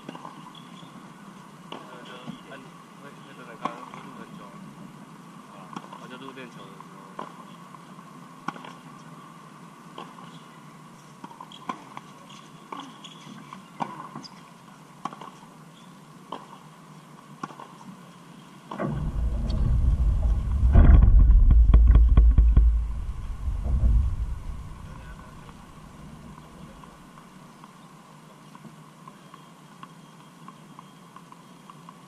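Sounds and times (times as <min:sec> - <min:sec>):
wind rumble on microphone: 0:18.8 - 0:27.1.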